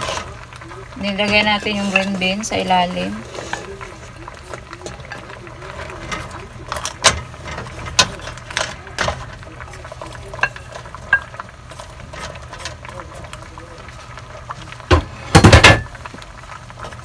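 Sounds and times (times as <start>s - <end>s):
low steady hum: 0.0s - 17.0s
utensils knocking on steel pot: 1.0s - 3.6s, 10.3s - 11.4s.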